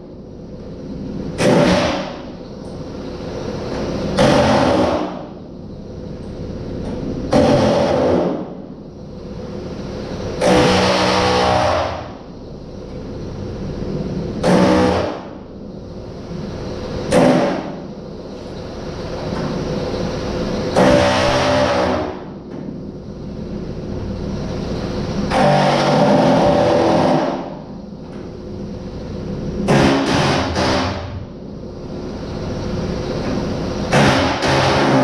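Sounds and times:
steady shop hum: 0:00.0 - 0:35.0
power tool bursts: 0:10.4 - 0:12.0.

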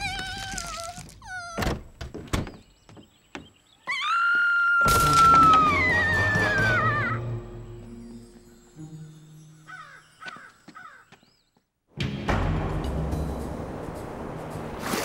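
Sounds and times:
cartoon music: 0:04.8 - 0:07.5.

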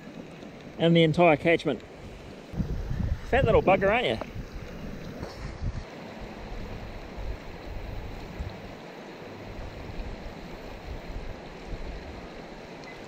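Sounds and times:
creek water rushing over pebbles: 0:00.0 - 0:13.0.

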